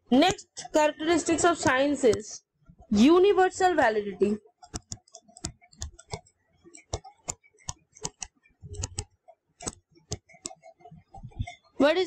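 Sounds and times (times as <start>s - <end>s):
stylus tapping on tablet screen: 0.1s - 3.5s, 4.2s - 11.6s.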